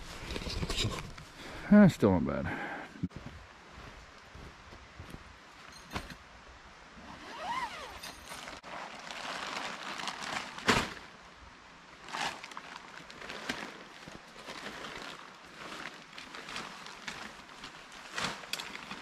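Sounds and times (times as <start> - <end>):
nylon tent fabric rustling: 7.0 - 11.2, 12.0 - 19.0.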